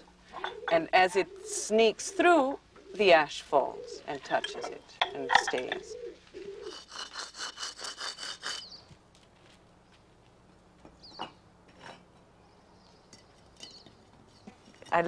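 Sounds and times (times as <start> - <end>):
saw cutting wood: 6.6 - 8.8.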